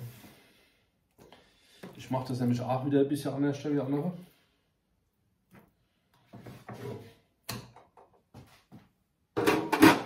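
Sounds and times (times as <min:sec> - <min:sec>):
metal pan moved on counter: 0:09.4 - 0:10.0.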